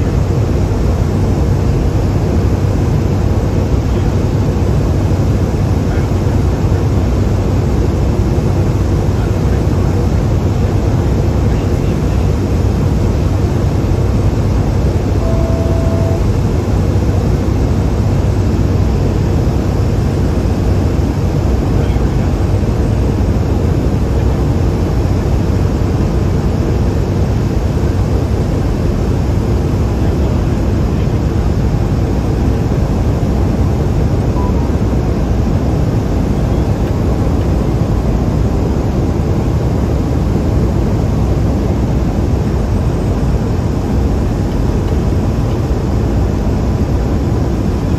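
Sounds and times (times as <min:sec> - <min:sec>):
turboprop engine cabin drone: 0:00.0 - 0:47.9
short faint beep: 0:15.2 - 0:16.3, 0:34.3 - 0:34.8.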